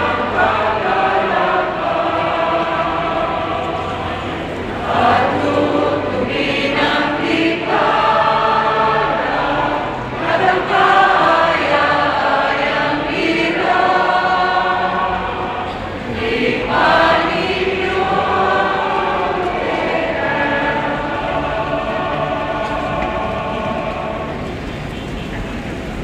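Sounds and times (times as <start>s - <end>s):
choir singing a hymn: 0.0s - 25.9s.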